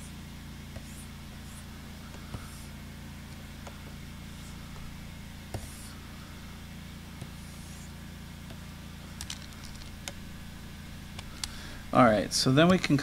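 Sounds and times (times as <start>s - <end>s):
low hum: 0.0s - 13.0s
stylus scratching on drawing tablet: 0.7s - 2.9s, 3.5s - 6.0s, 7.2s - 8.0s.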